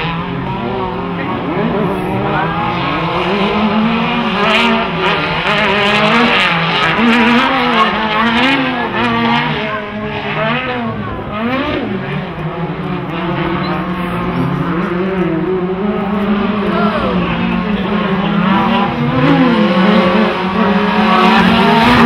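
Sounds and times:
racing buggy engines revving: 0.0 - 22.0.

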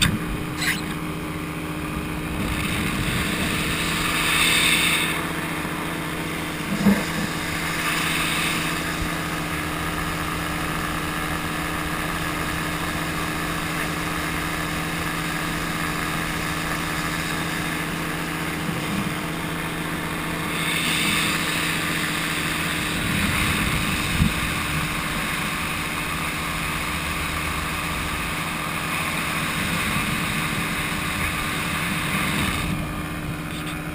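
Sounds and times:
engine and propeller drone: 0.0 - 33.9
wind on microphone: 22.8 - 25.6.

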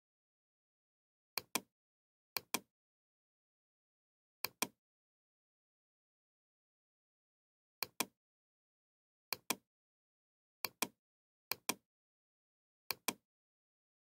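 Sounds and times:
computer mouse clicks: 1.4 - 1.7, 2.4 - 2.7, 4.4 - 4.8, 7.8 - 8.1, 9.3 - 9.6, 10.6 - 11.8, 12.9 - 13.2.

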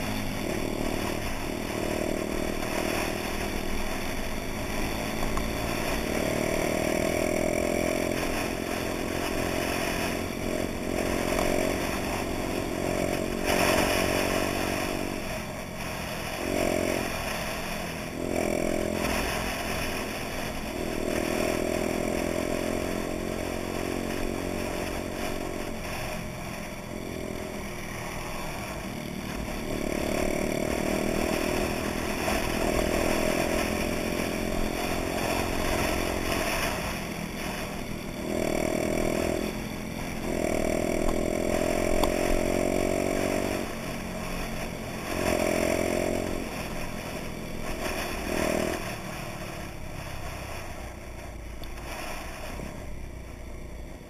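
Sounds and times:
moped engine revving: 0.0 - 54.0.

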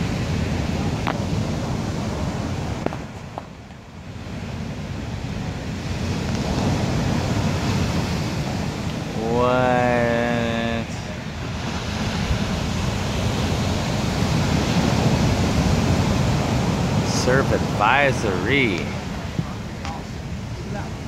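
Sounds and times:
ocean waves breaking: 0.0 - 21.0
man calling out: 9.1 - 11.1, 17.0 - 19.1.

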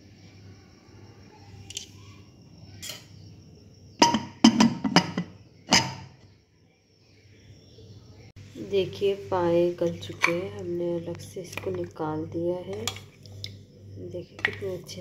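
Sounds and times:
metal lid clinking: 4.0 - 6.1
metal lid clanking: 4.0 - 6.2.

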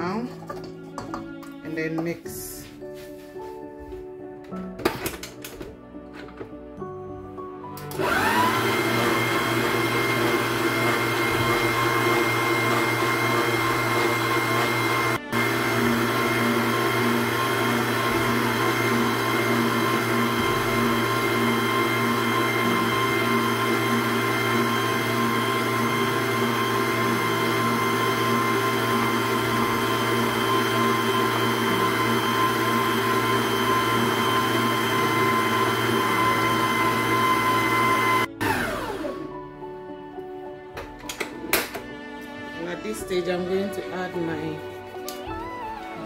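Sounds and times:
electric stand mixer running: 7.8 - 39.4.

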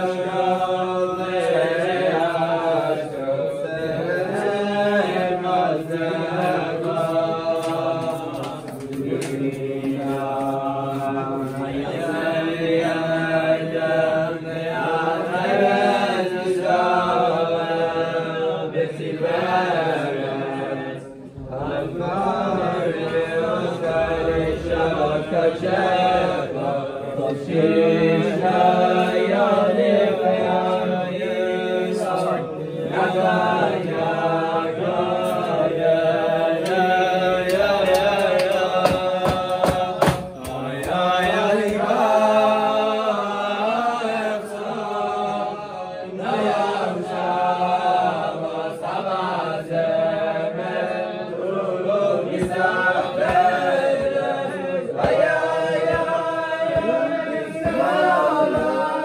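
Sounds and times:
young men singing together: 0.0 - 59.0.

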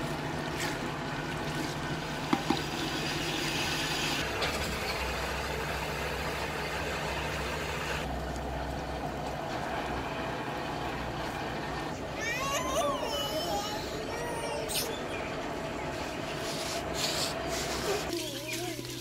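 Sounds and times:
low engine-like drone: 0.0 - 18.1
hiss: 16.5 - 18.1.

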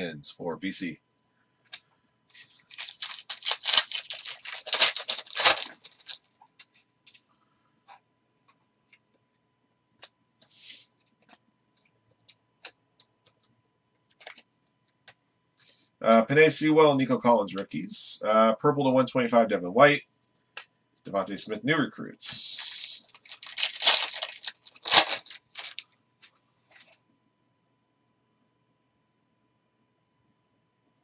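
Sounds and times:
foil wrapper tearing and crinkling: 2.3 - 6.2, 23.0 - 25.9.

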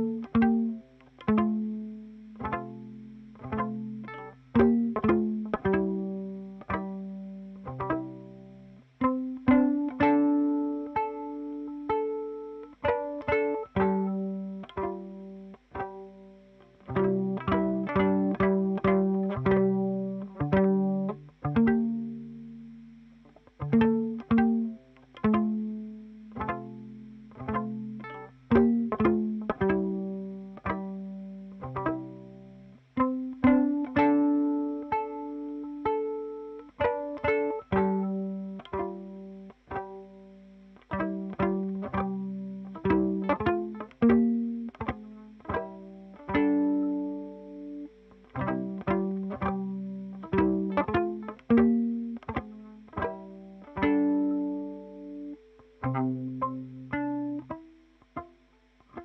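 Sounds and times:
plucked string notes: 0.0 - 59.0.

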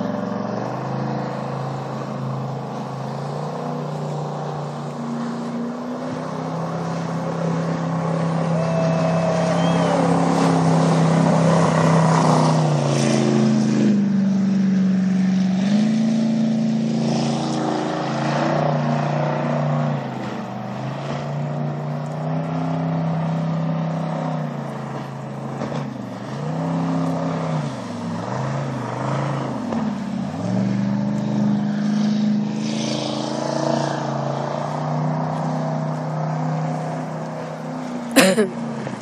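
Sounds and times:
boat engine running: 0.0 - 18.3.

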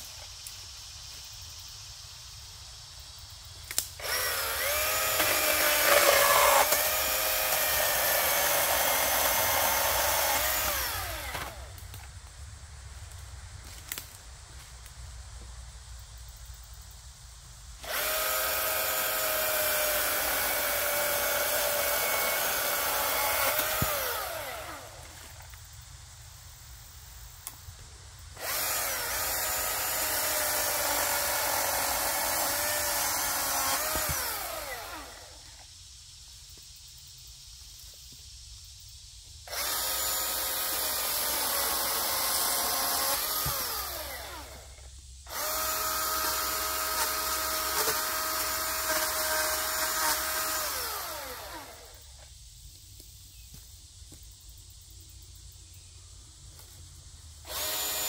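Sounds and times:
electric chainsaw cutting branches: 3.7 - 12.0, 17.8 - 25.4, 28.4 - 35.6, 39.5 - 52.2, 57.4 - 58.0.

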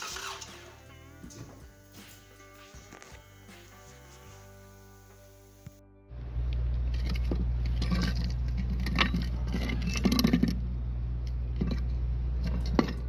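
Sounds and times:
steady low rumble: 6.1 - 13.0
metal parts clinking and knocking: 6.9 - 10.6.

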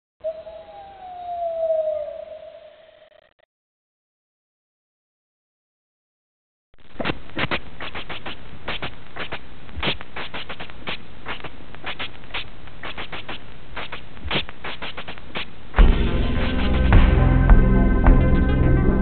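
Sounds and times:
crackling clicks: 6.8 - 15.5
music with low drone: 15.8 - 19.0.

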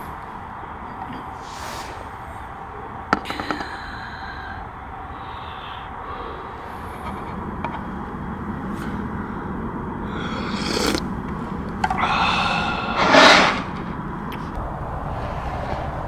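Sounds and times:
steady low hiss: 0.0 - 16.0
person slurping broth: 10.1 - 11.1, 11.9 - 13.8.

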